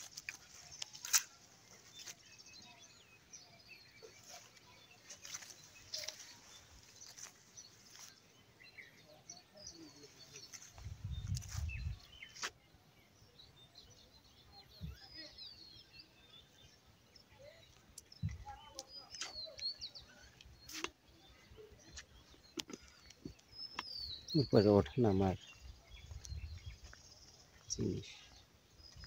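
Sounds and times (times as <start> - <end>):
birds chirping: 0.0 - 29.0
low rumble on microphone: 10.8 - 12.0.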